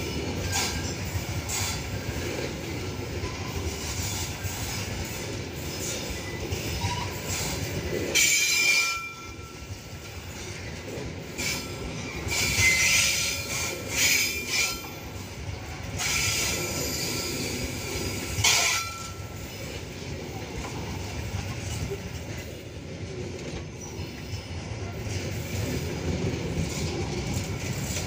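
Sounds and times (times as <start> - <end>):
train wheels rumbling on rail: 0.0 - 28.0
high wheel squeals: 11.4 - 15.0, 16.0 - 19.3.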